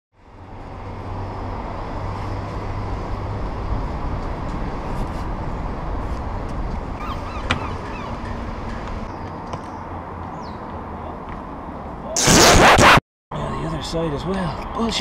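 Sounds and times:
city road traffic: 0:00.1 - 0:15.0.

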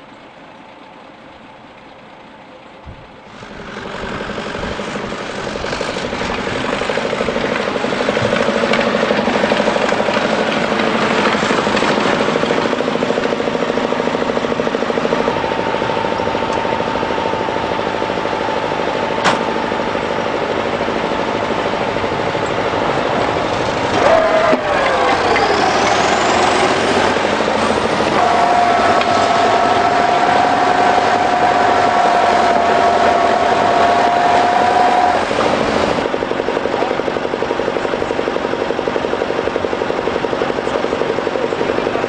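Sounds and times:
diesel tractor engine clattering: 0:00.0 - 0:42.0.

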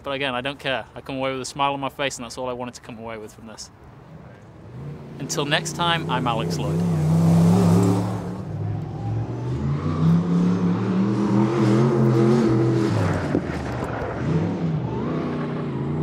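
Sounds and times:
racing engine revving: 0:04.2 - 0:16.0.

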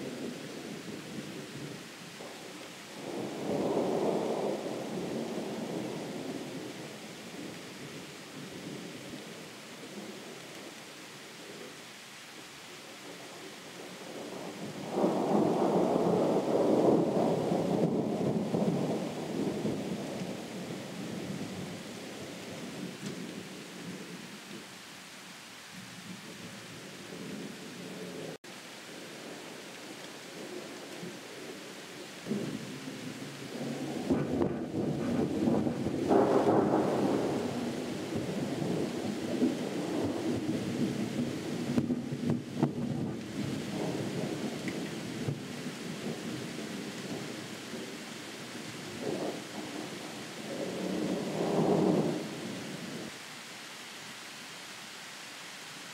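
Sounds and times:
faint hiss: 0:00.0 - 0:55.9
distant thunder rumble: 0:14.2 - 0:24.0, 0:32.2 - 0:48.0, 0:48.9 - 0:53.1.

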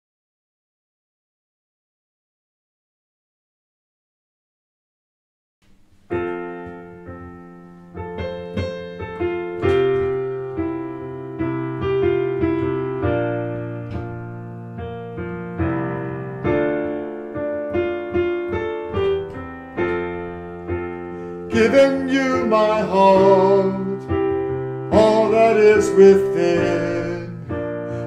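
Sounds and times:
slow piano chords: 0:05.6 - 0:28.0.

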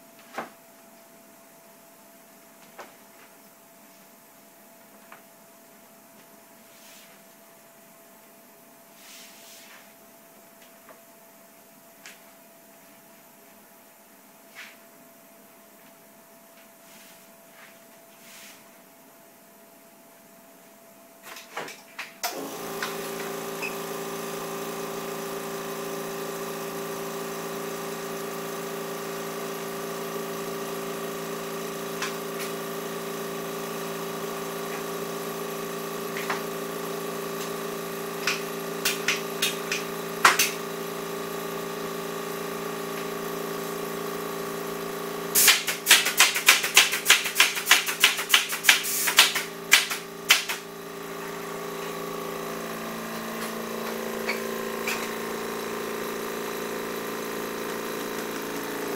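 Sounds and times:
machine electric hum: 0:18.9 - 0:58.9.

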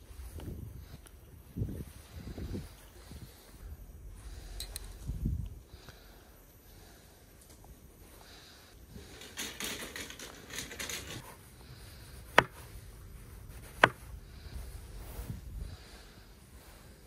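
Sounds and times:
knife striking wooden board: 0:13.8 - 0:14.0.

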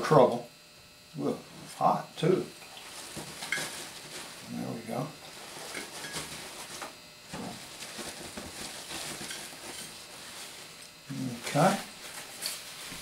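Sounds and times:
paper towel rustling: 0:02.7 - 0:13.0.

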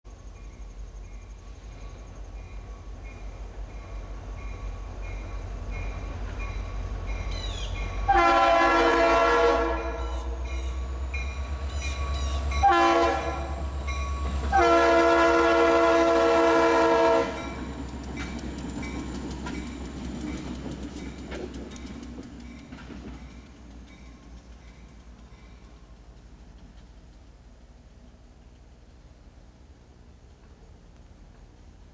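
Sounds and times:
locomotive engine rumble: 0:00.1 - 0:31.9
locomotive air horn blasts: 0:08.0 - 0:10.4, 0:12.4 - 0:13.7, 0:14.4 - 0:17.6.

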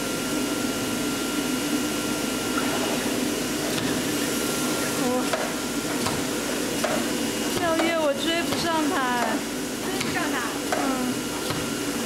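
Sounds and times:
machine blower whooshing hum: 0:00.0 - 0:12.0.

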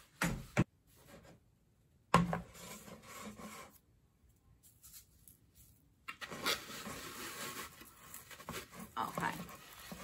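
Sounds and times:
wig rubbing and rustling: 0:04.6 - 0:10.0.

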